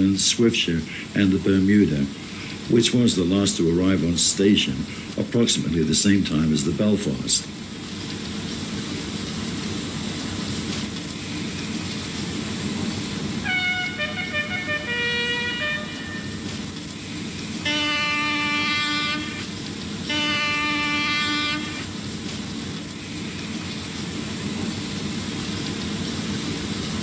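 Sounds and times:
horn-like pitched notes: 13.4 - 22.0.

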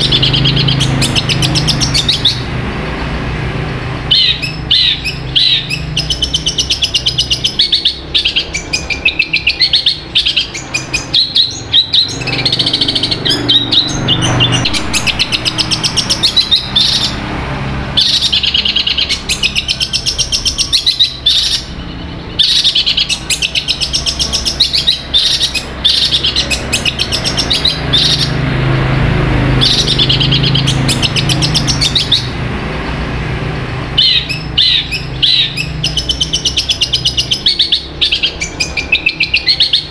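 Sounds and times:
shrike singing fast chattering: 0.0 - 2.5, 4.1 - 17.2, 29.5 - 32.3.

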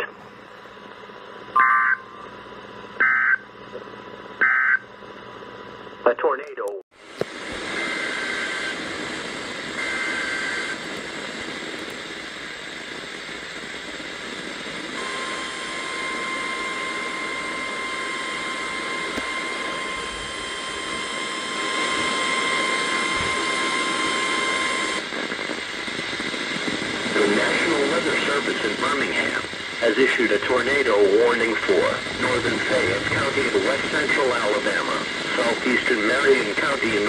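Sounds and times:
steady warning alarm tone: 1.5 - 2.2, 3.0 - 3.6, 4.4 - 4.9, 7.7 - 10.8, 14.8 - 25.1, 29.4 - 37.0
static hiss: 7.0 - 37.0
digital header tone bursts: 29.8 - 35.9.

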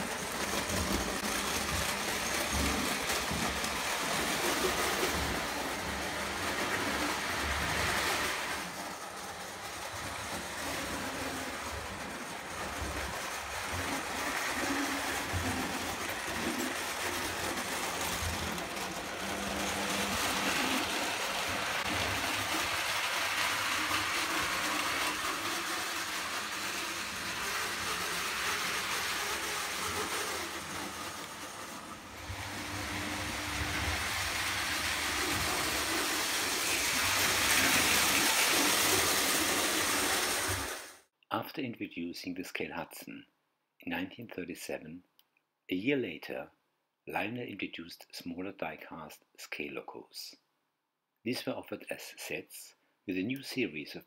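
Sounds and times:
toy trains running on metal rails: 0.0 - 41.1.

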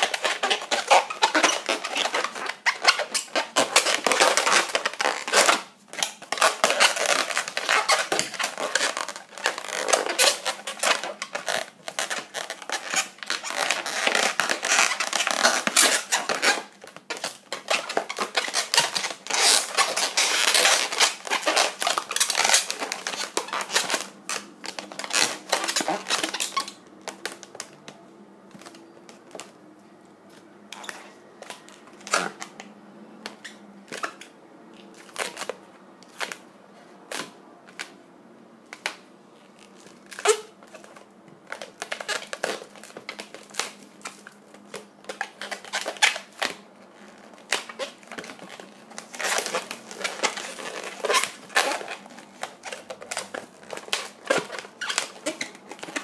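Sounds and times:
balloon squeaking and rubbing: 0.0 - 27.8, 39.5 - 43.8, 45.1 - 56.0.

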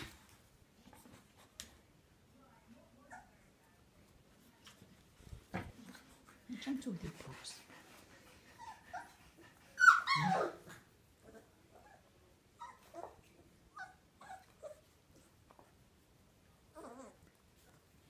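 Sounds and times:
dog yelping cry: 9.8 - 10.7
puppy whimpers and yips: 9.8 - 10.8, 12.6 - 13.2.

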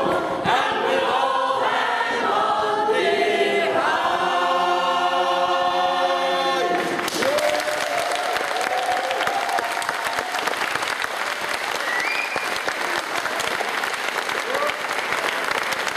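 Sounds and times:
choir singing a cappella: 0.0 - 7.1
applause: 6.7 - 15.9.

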